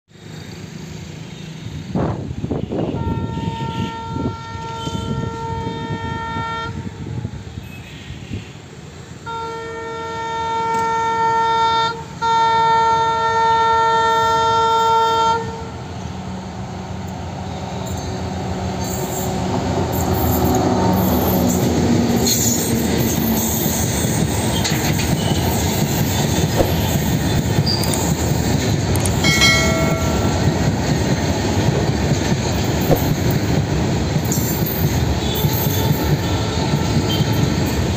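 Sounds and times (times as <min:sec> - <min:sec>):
locomotive air horn blasts: 0:02.4 - 0:08.5, 0:09.2 - 0:15.8, 0:24.4 - 0:28.0, 0:35.2 - 0:37.6
locomotive engine passing: 0:15.8 - 0:37.9.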